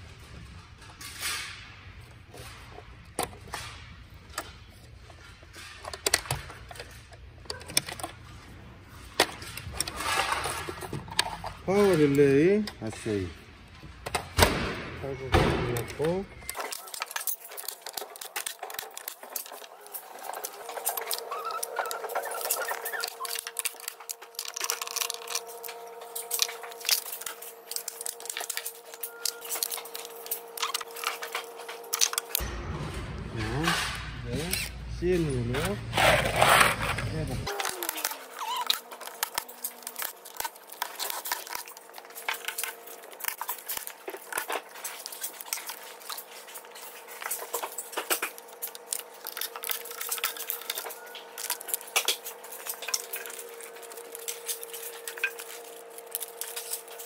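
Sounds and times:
plastic connectors clicking: 15.8s - 32.4s, 37.5s - 46.6s, 47.2s - 57.0s
wiring harness rustling: 15.9s - 32.4s, 34.4s - 57.0s.

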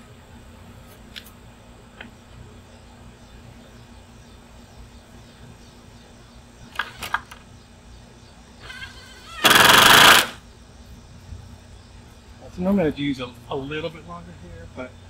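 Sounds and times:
cordless driver driving screw: 9.4s - 10.4s
sharp clicks: 9.4s - 10.4s.

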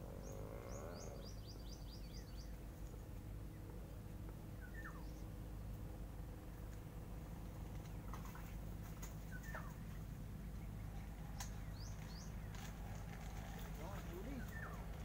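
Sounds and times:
low background rumble: 0.0s - 15.0s
bird chirping: 0.1s - 2.6s, 4.6s - 5.3s, 13.8s - 14.9s.

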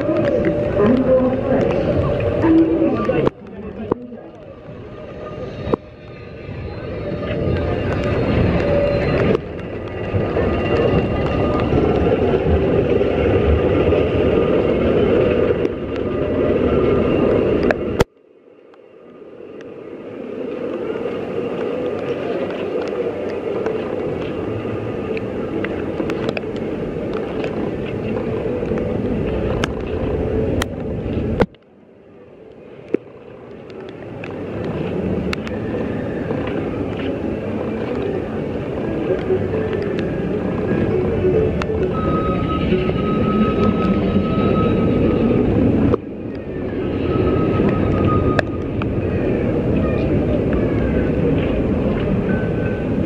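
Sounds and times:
steady rain: 20.1s - 31.7s, 32.3s - 45.2s.

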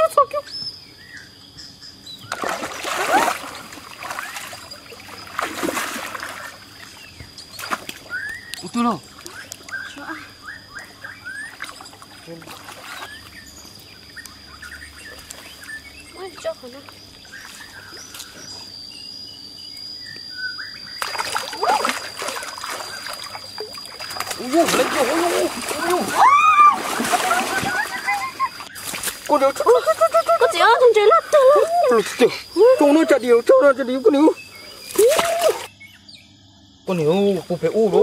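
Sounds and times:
high insect tone: 0.0s - 38.0s
water splashing in stream: 2.3s - 7.0s, 21.0s - 29.4s, 34.9s - 35.7s.

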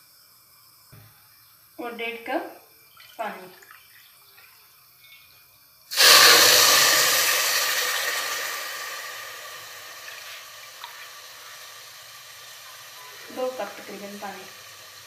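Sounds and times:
water pouring into metal pot: 5.9s - 15.0s.

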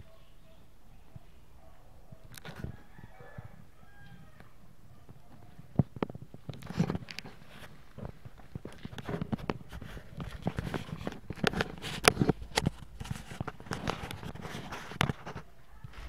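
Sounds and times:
dogs scuffling: 4.9s - 16.0s.

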